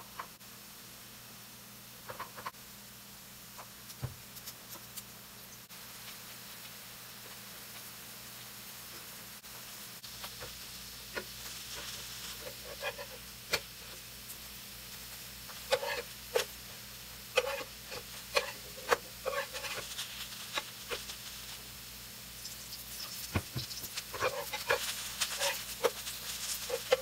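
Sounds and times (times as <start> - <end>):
faint oil sizzle: 0.0 - 27.0
metal spatula scraping a pan: 11.1 - 13.7, 15.5 - 16.6, 17.3 - 21.1, 22.7 - 27.0.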